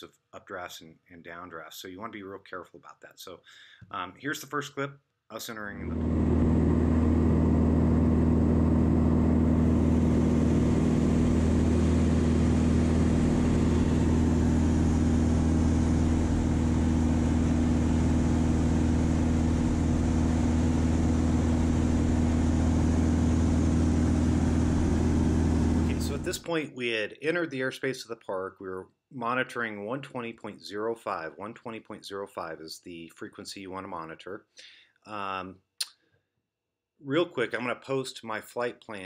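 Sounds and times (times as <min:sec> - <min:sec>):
aircraft engine and propeller droning: 0:05.9 - 0:26.3.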